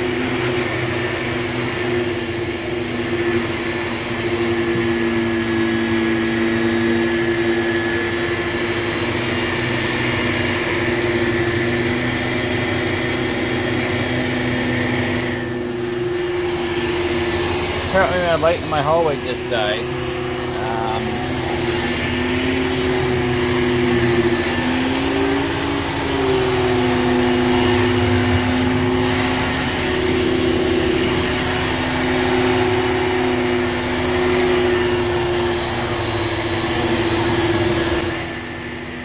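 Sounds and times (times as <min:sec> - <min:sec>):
vacuum cleaner running on carpet: 0:00.0 - 0:39.0.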